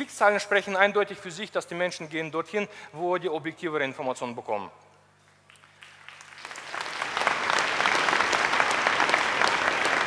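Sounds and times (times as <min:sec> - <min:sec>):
audience applause: 0:05.5 - 0:10.0.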